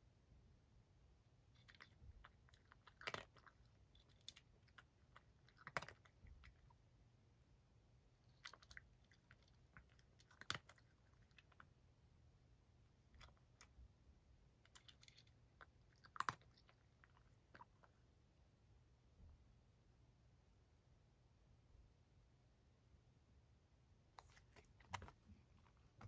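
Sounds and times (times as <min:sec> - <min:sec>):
cat crunching dry kibble: 0:01.5 - 0:06.8, 0:08.2 - 0:11.8, 0:13.0 - 0:13.8, 0:14.6 - 0:18.0, 0:24.2 - 0:25.3.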